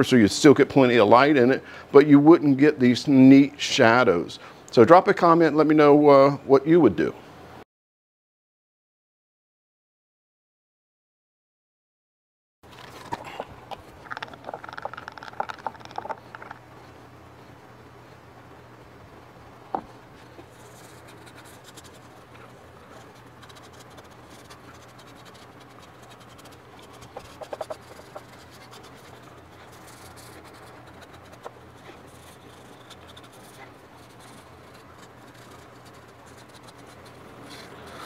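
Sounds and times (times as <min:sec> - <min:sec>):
shop fan humming: 0:12.7 - 0:38.0
hand rubbing oil into wood: 0:19.8 - 0:38.0.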